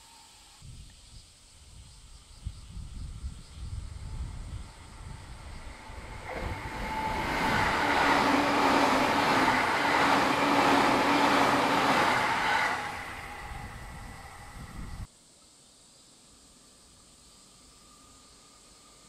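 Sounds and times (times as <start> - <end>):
train rail noise: 3.9 - 15.1.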